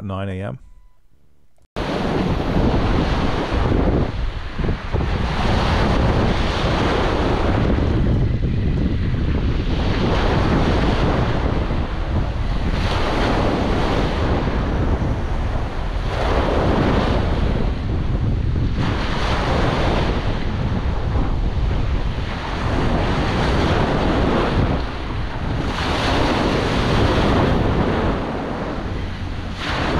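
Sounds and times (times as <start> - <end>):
surf breaking on stony beach: 1.8 - 8.1, 29.5 - 29.9
wind rumbling on microphone: 1.8 - 29.9.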